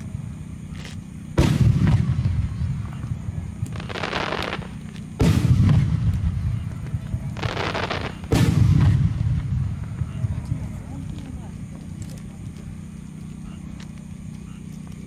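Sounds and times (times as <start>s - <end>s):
firework crackling: 0.0s - 13.3s
firework booms with rumbling tail: 1.3s - 11.0s.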